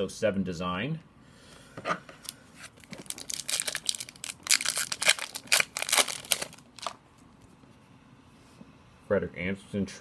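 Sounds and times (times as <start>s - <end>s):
foil wrapper tearing and crinkling: 2.7s - 7.0s.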